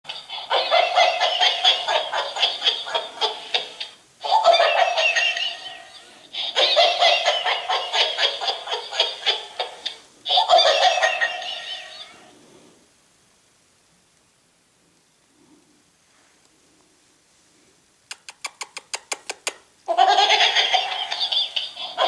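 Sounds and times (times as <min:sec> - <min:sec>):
toy dog giggling laughter: 0:00.1 - 0:12.2, 0:18.5 - 0:22.0.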